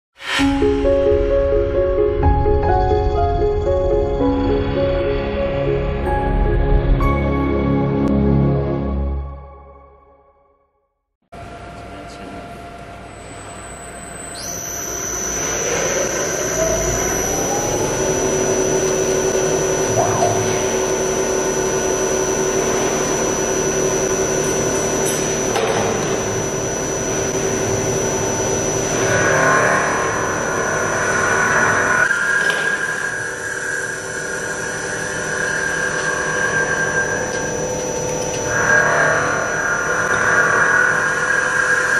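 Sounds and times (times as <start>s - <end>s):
lathe spindle whine: 11.4s - 41.9s.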